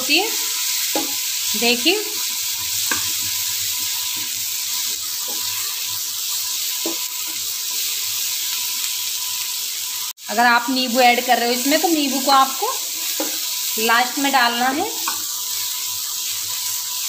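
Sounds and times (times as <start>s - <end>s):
onions sizzling in oil: 0.0s - 17.0s
spatula scraping pan: 2.0s - 9.4s.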